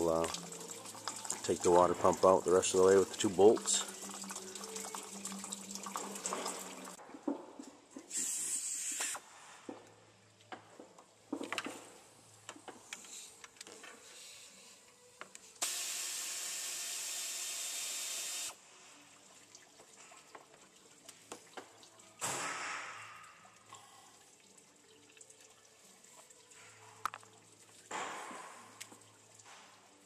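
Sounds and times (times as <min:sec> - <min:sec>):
pneumatic air ratchet: 0:08.1 - 0:09.3.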